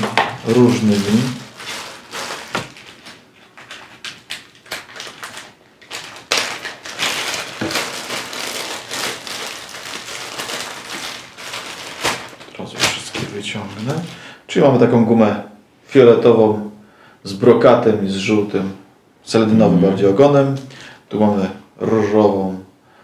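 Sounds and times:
plastic packet crinkling: 0:00.0 - 0:14.2.

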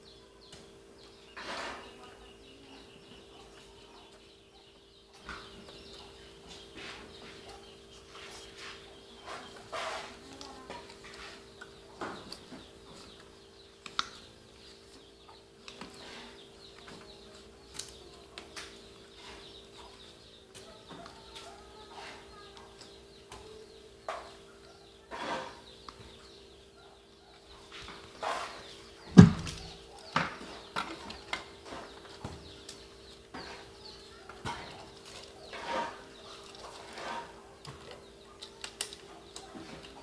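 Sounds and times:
loud knock on metal panel: 0:29.2 - 0:29.6.

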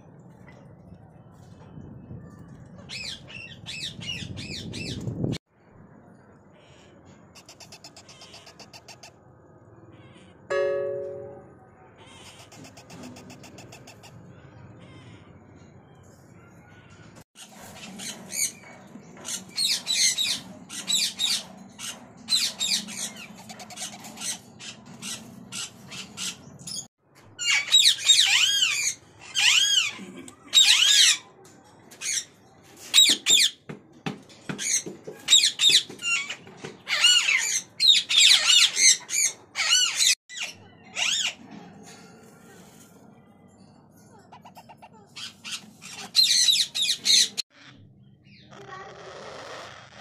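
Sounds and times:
parakeet squawking: 0:07.4 - 0:09.2, 0:12.0 - 0:14.2, 0:19.6 - 0:26.8, 0:44.3 - 0:50.0.

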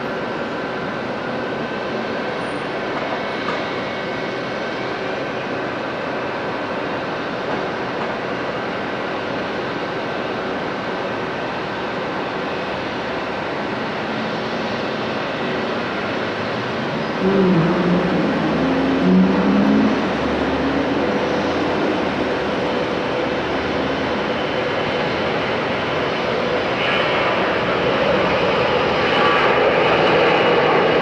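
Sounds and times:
jet engines running: 0:00.0 - 0:31.0
wavering sound: 0:17.2 - 0:22.4.

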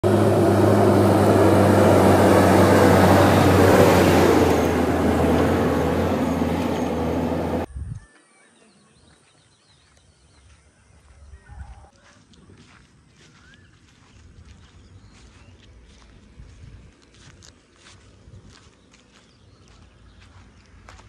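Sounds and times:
diesel engine running: 0:00.0 - 0:07.7.

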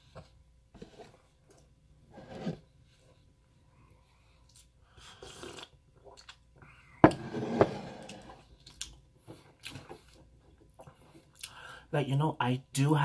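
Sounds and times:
sips and swallows: 0:04.5 - 0:06.4.

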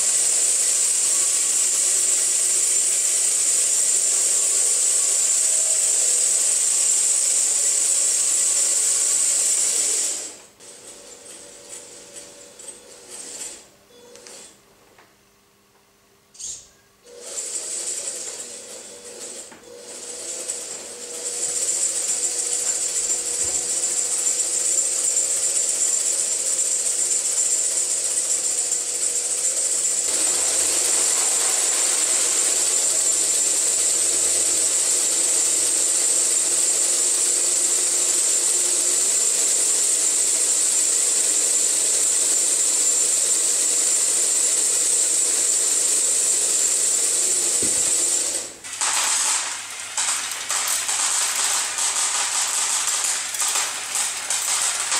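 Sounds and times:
small electric motors whining: 0:00.0 - 0:14.5, 0:16.4 - 0:54.9
model potatoes rattling onto conveyor: 0:47.6 - 0:54.9.

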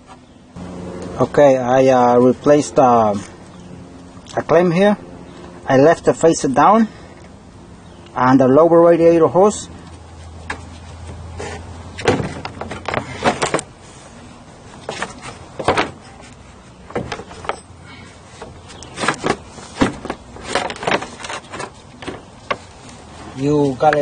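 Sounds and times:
plastic knocking and scraping: 0:11.4 - 0:13.7, 0:14.8 - 0:16.0, 0:18.4 - 0:22.7.

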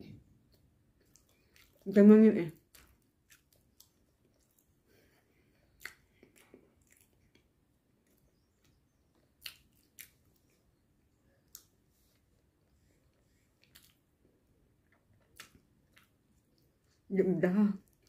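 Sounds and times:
mouth clicks from chewing: 0:05.8 - 0:07.4, 0:09.4 - 0:10.2.

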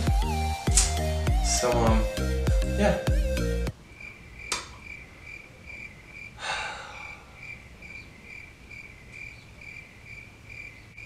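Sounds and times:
cricket chirping: 0:03.7 - 0:11.0
breathy exhale: 0:06.4 - 0:07.6.

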